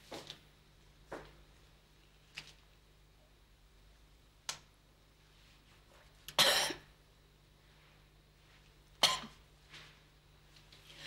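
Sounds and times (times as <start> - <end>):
person coughing: 6.4 - 6.9, 9.0 - 9.4.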